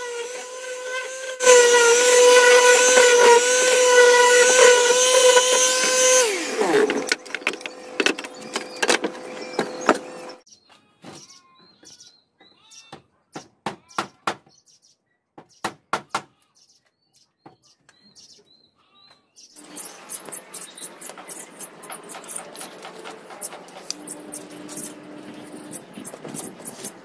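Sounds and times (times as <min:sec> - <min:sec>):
hand sanding a board: 0:00.0 - 0:07.0
bird chirping: 0:07.0 - 0:27.0.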